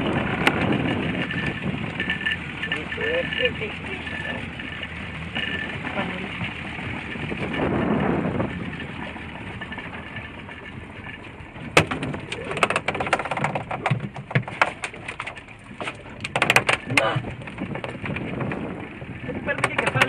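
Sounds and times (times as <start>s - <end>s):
water noise: 0.0s - 20.0s
knocks against boat: 11.6s - 18.7s, 19.4s - 20.0s.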